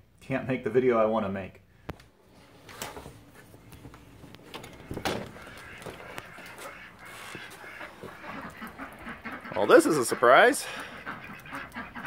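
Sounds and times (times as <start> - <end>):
dog moving: 2.6 - 9.1.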